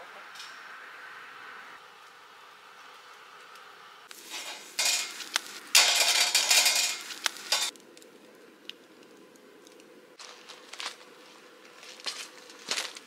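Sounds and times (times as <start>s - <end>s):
fire crackles: 1.8s - 13.0s
meat sizzling on a grill: 4.1s - 7.7s
metal clinks against grill: 4.3s - 5.2s, 5.8s - 7.7s.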